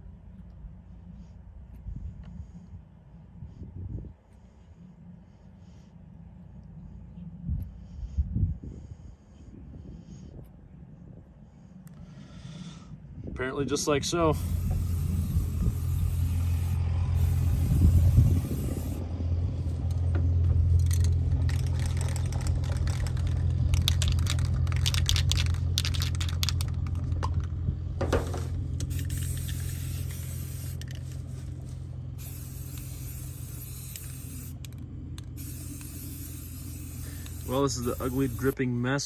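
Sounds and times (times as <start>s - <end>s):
steady low rumble: 0.0s - 39.0s
spray paint cans hissing: 14.3s - 19.0s, 20.8s - 27.5s, 28.1s - 38.6s
scraping and handling noise: 20.7s - 32.0s.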